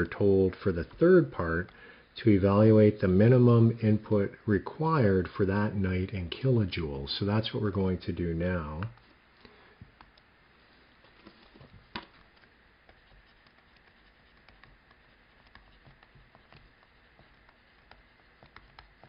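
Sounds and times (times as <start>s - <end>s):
stylus tapping on tablet screen: 11.6s - 19.0s.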